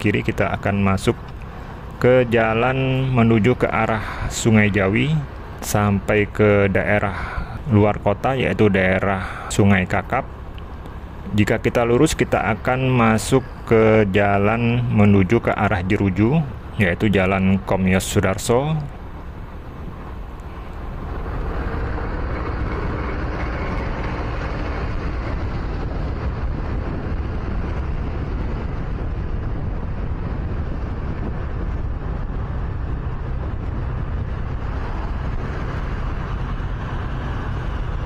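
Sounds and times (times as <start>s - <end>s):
wind rumbling on microphone: 0.0s - 38.0s
motorcycle engine: 18.9s - 38.0s.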